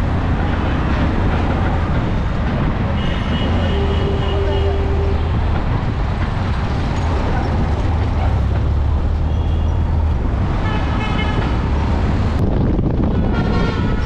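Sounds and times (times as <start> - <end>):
road and wind noise: 0.0 - 14.0
vehicle engine humming: 0.0 - 14.0
vehicle horn honking: 3.0 - 5.3, 10.6 - 11.6, 13.1 - 14.0.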